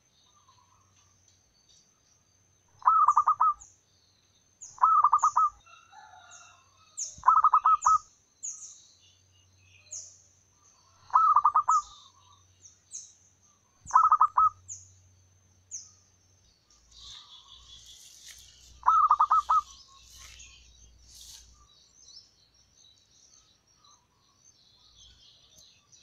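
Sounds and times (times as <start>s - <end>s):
faint high bird chirps: 0.0s - 26.0s
dove cooing: 2.8s - 3.6s, 4.8s - 5.6s, 7.2s - 8.0s, 11.0s - 12.0s, 13.9s - 14.6s, 18.8s - 20.6s.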